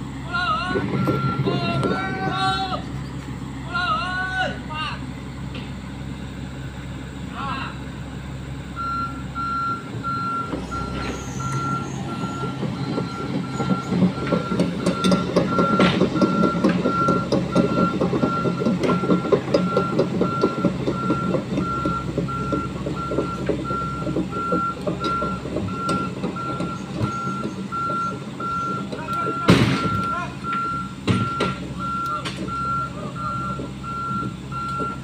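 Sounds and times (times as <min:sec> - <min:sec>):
diesel engine working: 0:00.0 - 0:35.0
backup alarm beeping: 0:00.7 - 0:02.2, 0:08.8 - 0:35.0.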